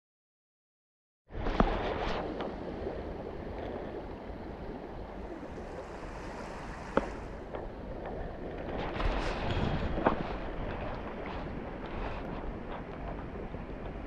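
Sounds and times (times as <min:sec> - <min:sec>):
river rushing: 0:05.0 - 0:07.5.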